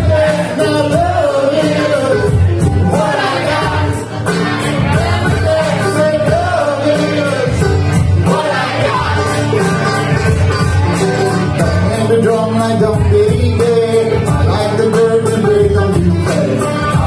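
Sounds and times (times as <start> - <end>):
man singing: 0.0 - 17.0
steady beat: 0.0 - 17.0
strummed acoustic guitar: 0.0 - 17.0.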